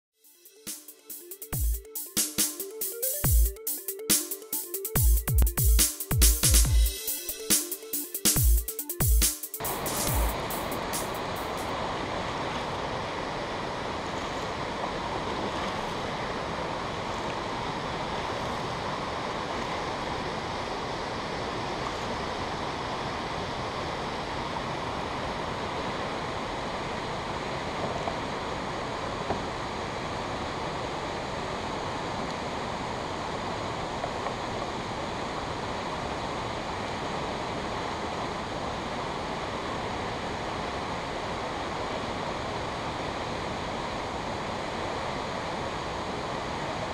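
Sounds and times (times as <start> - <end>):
water rushing through dam gates: 9.6 - 46.9.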